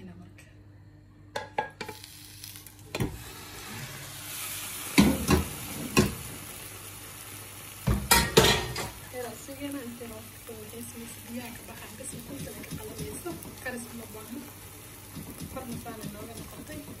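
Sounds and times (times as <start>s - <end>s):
omelette sizzling in frying pan: 1.8s - 17.0s
pan and plate knocking on stove: 5.0s - 6.3s, 7.8s - 9.0s.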